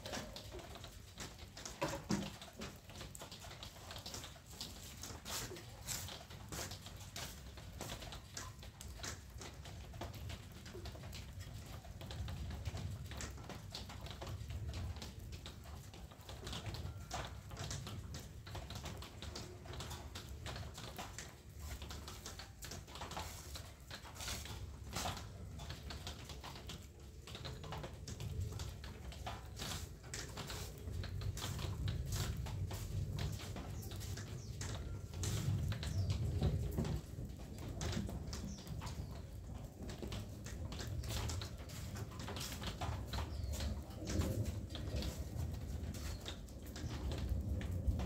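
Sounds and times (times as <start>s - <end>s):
cucumbers clicking and knocking: 0.0s - 48.0s.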